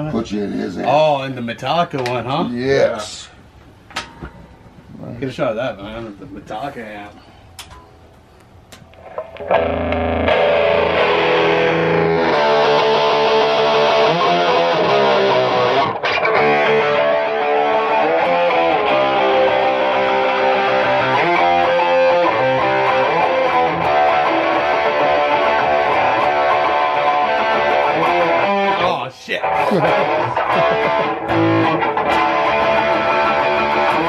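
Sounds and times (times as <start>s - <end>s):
distorted electric guitar riff: 8.9s - 34.0s.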